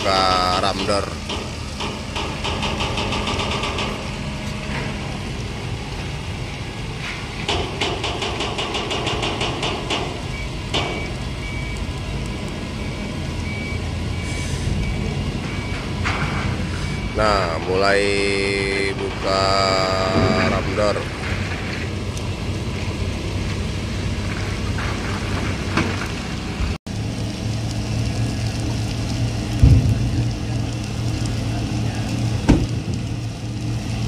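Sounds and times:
forklift engine running: 0:00.0 - 0:17.7
ship engine rumbling: 0:00.0 - 0:34.0
faint beeping alarm: 0:10.3 - 0:11.9, 0:12.8 - 0:16.0, 0:16.6 - 0:17.8.

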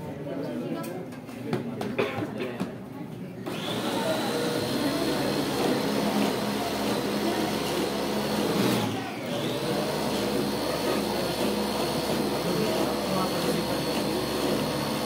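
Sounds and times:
food processor motor whining: 0:03.5 - 0:15.0.

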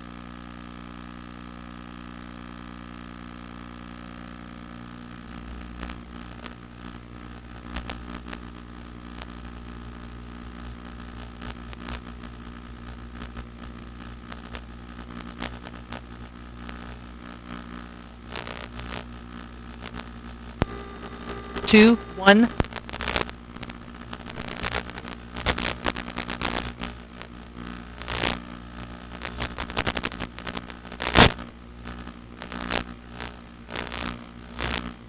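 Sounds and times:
crackling clicks: 0:20.6 - 0:22.6
electrical hum: 0:20.6 - 0:22.6.

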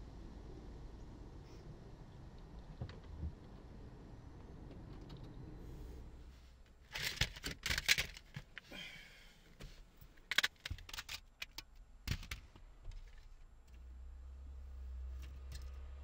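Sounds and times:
plastic cases clicking and clattering: 0:06.9 - 0:08.6, 0:10.2 - 0:13.3.

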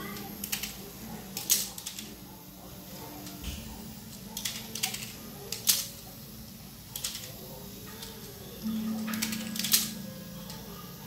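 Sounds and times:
plastic clicks on tile floor: 0:00.1 - 0:02.2, 0:04.4 - 0:06.0, 0:06.9 - 0:08.4, 0:09.1 - 0:09.9.

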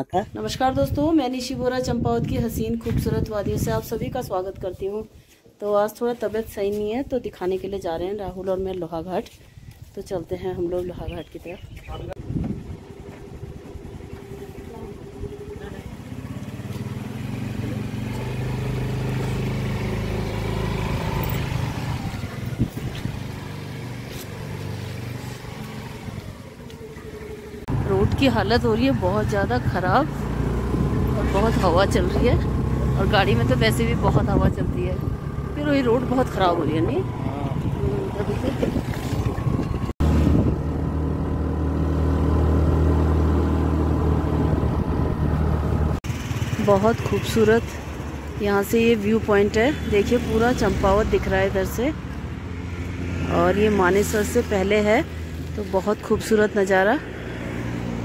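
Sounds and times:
wind and road noise: 0:00.0 - 0:58.0
vehicle engine running: 0:12.1 - 0:58.0.

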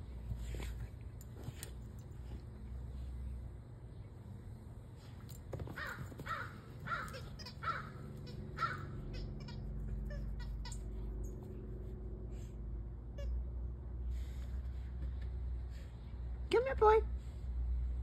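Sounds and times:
crow cawing: 0:05.8 - 0:09.0.

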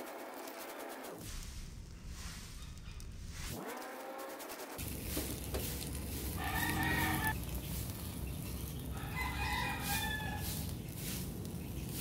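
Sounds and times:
rooster crowing: 0:06.2 - 0:07.4, 0:08.7 - 0:10.7.

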